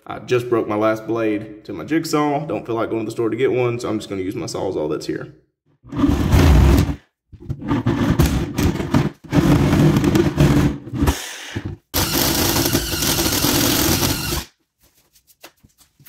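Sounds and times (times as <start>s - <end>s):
cordless drill boring: 12.0s - 14.5s
reciprocating saw cutting plywood: 12.0s - 14.5s.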